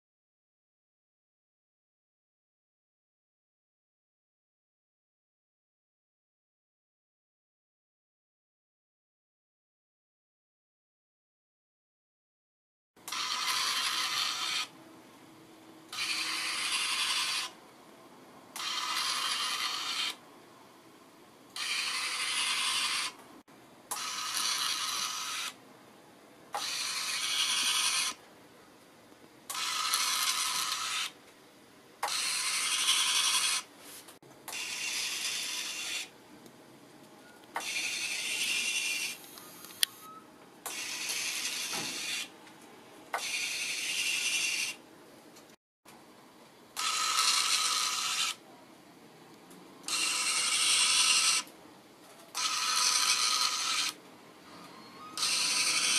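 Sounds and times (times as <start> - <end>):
small electric motor and gears whirring: 13.0 - 14.8, 15.9 - 17.6, 18.6 - 20.2, 21.5 - 23.2, 23.9 - 25.6, 26.5 - 28.2, 29.5 - 31.2, 32.0 - 36.2, 37.5 - 42.4, 43.1 - 44.8, 46.8 - 48.4, 49.8 - 55.9.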